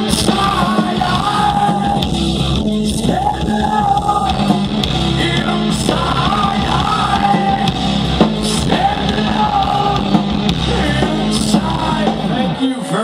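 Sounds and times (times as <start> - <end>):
live hard rock band: 0.0 - 13.0
person singing and shouting: 8.5 - 13.0.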